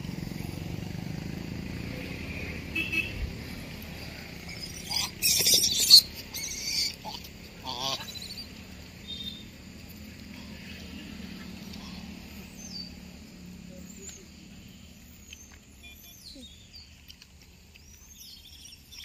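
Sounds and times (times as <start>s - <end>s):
monkey screeching: 4.5s - 8.5s
monkey squealing: 4.5s - 8.5s.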